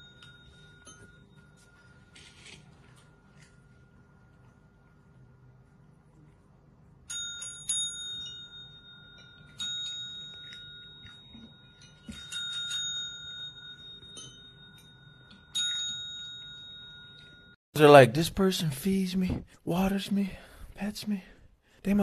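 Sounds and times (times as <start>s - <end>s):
desk service bell dings: 7.1s - 17.6s.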